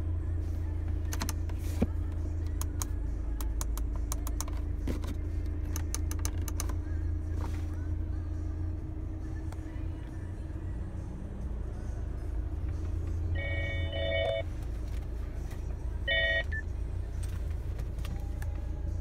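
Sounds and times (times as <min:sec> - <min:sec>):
car engine idling: 0:00.0 - 0:19.0
short electronic beeps: 0:13.4 - 0:14.4, 0:16.1 - 0:16.7.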